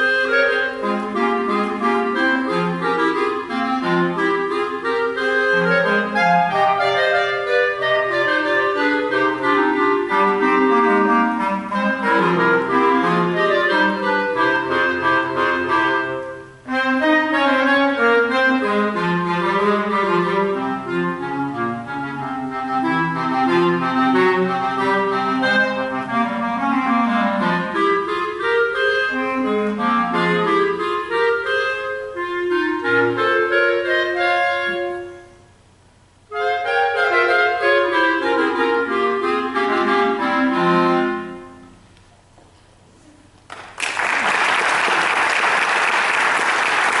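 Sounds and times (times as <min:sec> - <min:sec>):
clarinet quartet playing: 0:00.0 - 0:42.0
audience applause: 0:43.5 - 0:47.0.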